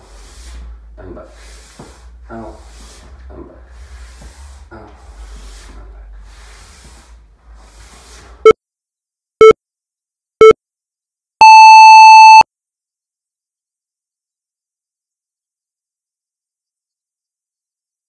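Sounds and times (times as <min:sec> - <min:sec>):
shoe sliding on wooden floor: 0:00.0 - 0:08.4
timer beeps: 0:11.4 - 0:12.4.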